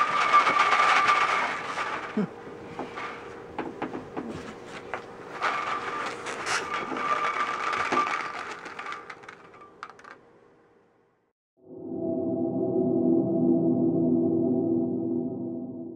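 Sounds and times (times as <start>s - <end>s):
rice rattling in balloon: 0.0s - 2.3s, 5.3s - 10.2s.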